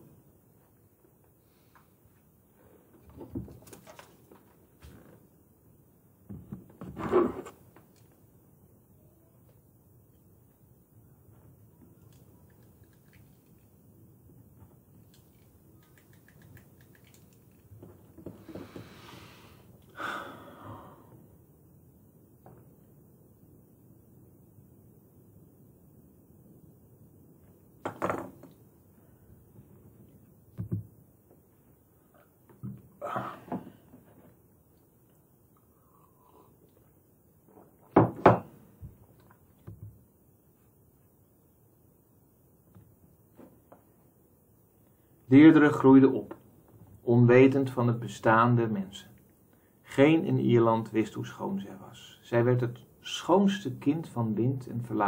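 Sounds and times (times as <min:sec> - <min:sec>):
small clicks: 0:12.0 - 0:13.7, 0:15.0 - 0:17.7
breath close to microphone: 0:18.4 - 0:21.2, 0:35.6 - 0:36.6.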